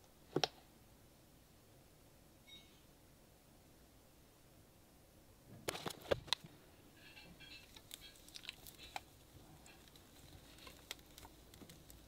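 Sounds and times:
soft crinkling: 0:05.5 - 0:12.0.

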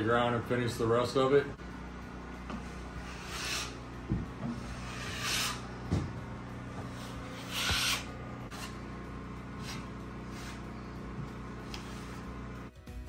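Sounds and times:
drywall knife scraping: 0:02.7 - 0:03.8, 0:04.4 - 0:05.7, 0:06.8 - 0:08.8, 0:09.5 - 0:10.9
dull knocks: 0:04.0 - 0:04.6, 0:05.8 - 0:06.3.

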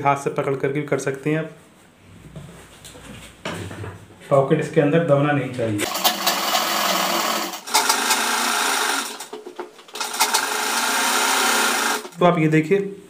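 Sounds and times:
sewing machine stitching: 0:05.9 - 0:12.2.

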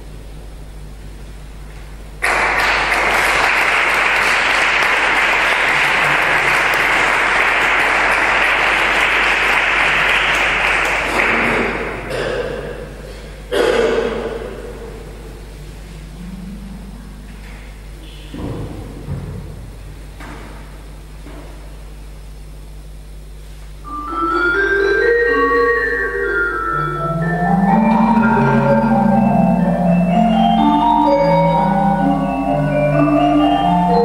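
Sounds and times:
audience applauding: 0:02.2 - 0:12.3.

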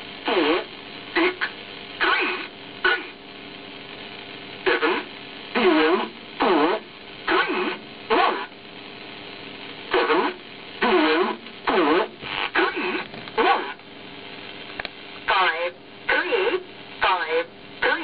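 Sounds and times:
radio hiss: 0:00.0 - 0:18.0
voice reading numbers: 0:15.3 - 0:18.0.

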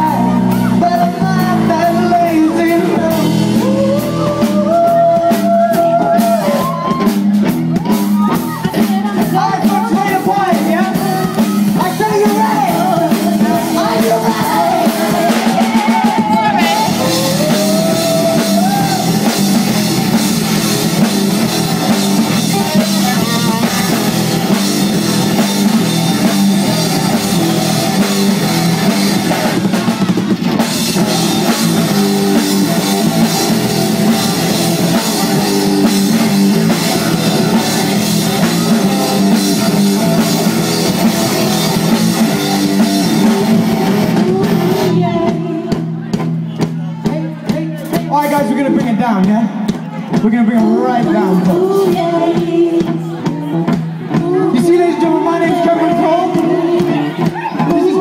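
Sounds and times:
electric guitar: 0:00.0 - 0:46.1
drum kit: 0:00.0 - 0:58.0.

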